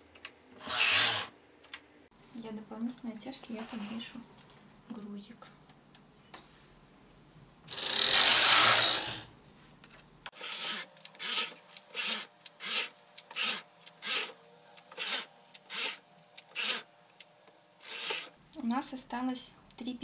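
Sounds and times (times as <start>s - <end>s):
knitting machine carriage sliding: 0.6s - 1.3s.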